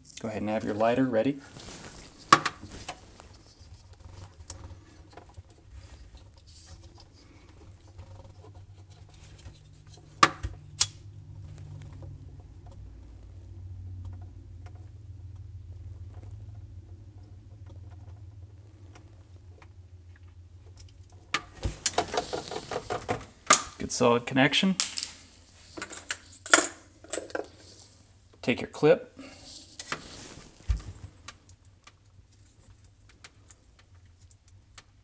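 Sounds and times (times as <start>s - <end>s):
wires clicking and scratching: 1.4s - 23.8s, 29.4s - 35.0s.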